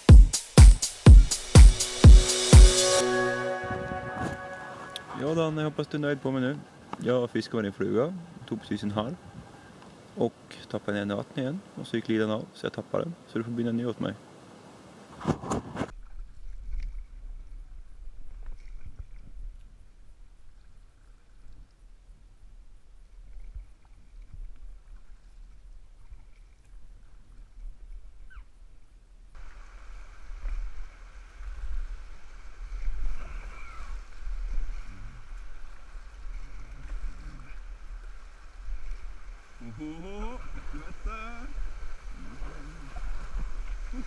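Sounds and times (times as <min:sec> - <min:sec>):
paddle splashes: 0:23.0 - 0:28.3, 0:29.4 - 0:44.0
water rushing in rapids: 0:29.4 - 0:44.0.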